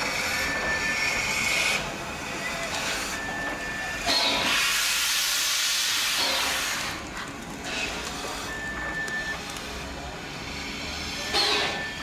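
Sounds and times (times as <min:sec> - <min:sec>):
steam hissing: 0:02.8 - 0:07.0.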